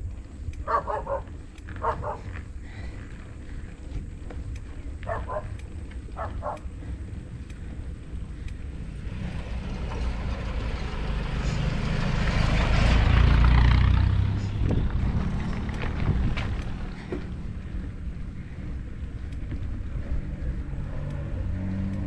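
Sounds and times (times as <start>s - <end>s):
motorcycle engine running: 0.0s - 22.0s
wind and road noise: 0.0s - 22.0s
dog barking: 0.7s - 2.3s, 5.0s - 5.5s, 6.2s - 6.6s.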